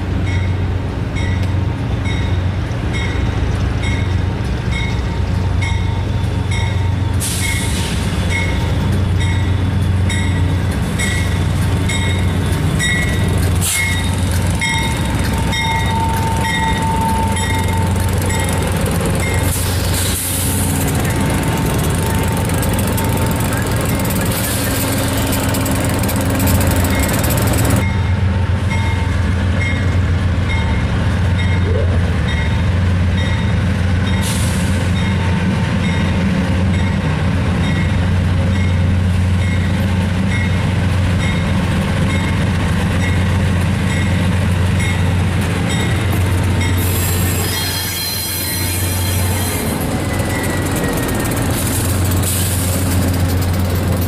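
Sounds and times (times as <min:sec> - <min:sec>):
diesel locomotive engine drone: 0:00.0 - 0:54.0
high squeal and hiss: 0:46.8 - 0:49.8.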